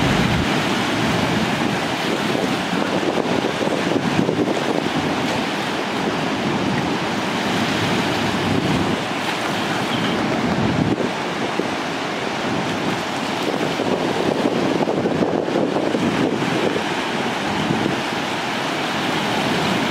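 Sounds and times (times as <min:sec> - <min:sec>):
river water pouring over a dam: 0:00.0 - 0:19.9
wind gusting on microphone: 0:00.0 - 0:19.9.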